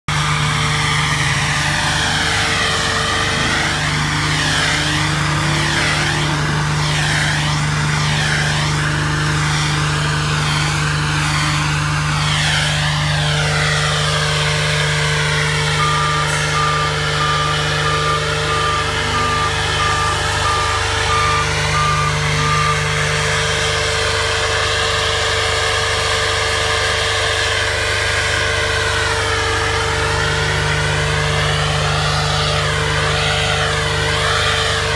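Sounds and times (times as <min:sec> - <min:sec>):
engine and blower hum: 0:00.0 - 0:34.9.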